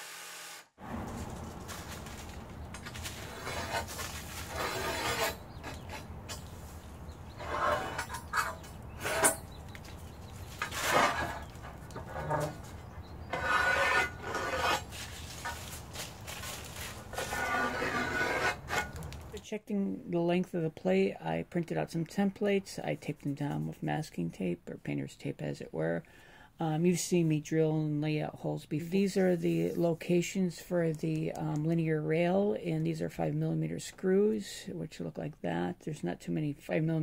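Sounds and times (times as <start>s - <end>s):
file scraping metal: 2.8s - 6.5s, 7.3s - 9.5s, 10.6s - 15.6s, 17.1s - 19.0s.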